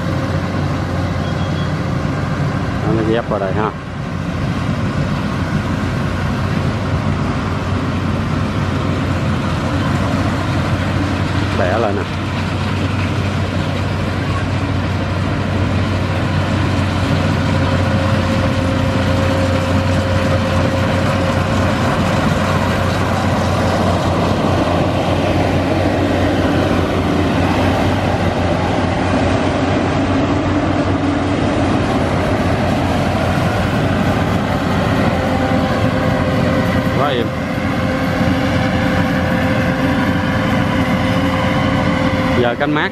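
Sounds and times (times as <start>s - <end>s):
combine harvester engine drone: 0.0s - 42.9s.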